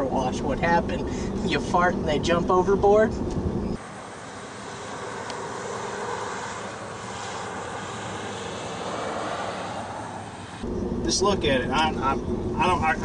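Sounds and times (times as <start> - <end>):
steady rushing outdoor noise: 3.2 - 13.0.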